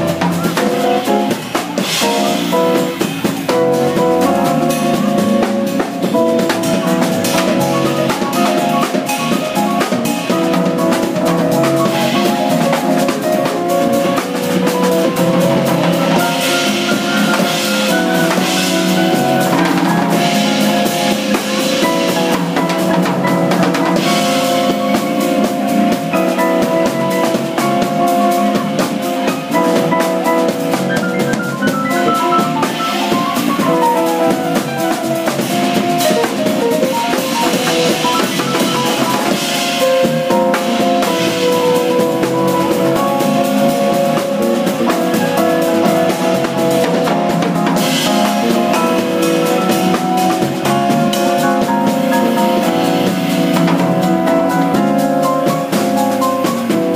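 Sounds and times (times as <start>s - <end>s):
drum kit: 0.0s - 56.9s
falling run of notes: 0.0s - 56.9s
jazz trio playing: 0.0s - 56.9s.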